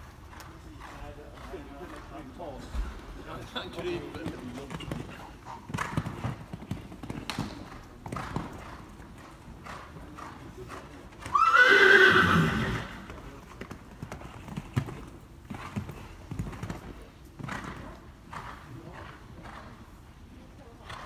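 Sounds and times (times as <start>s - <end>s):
horse hooves cantering on sand: 0.0s - 21.0s
horse whinny: 11.3s - 13.1s.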